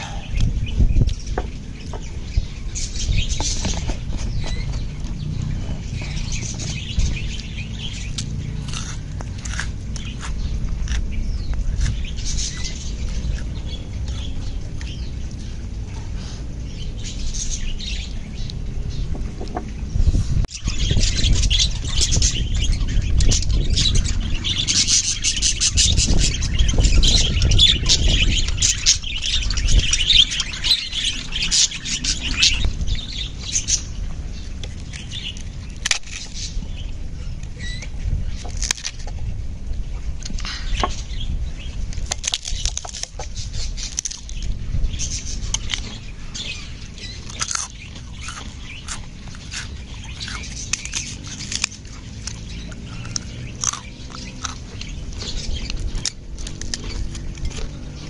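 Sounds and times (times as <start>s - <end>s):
budgerigars chirping: 0.0s - 15.6s, 20.5s - 38.4s.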